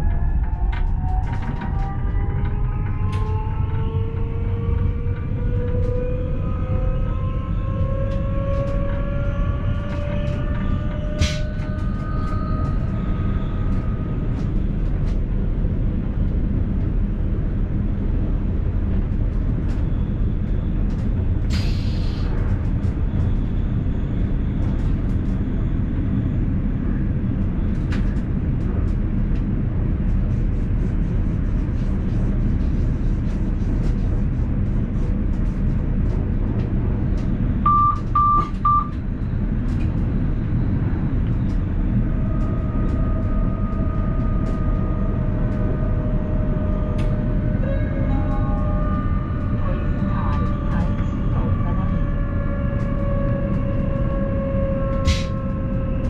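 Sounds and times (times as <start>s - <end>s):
electric train rumbling: 0.0s - 56.0s
short high beeps: 37.7s - 38.9s.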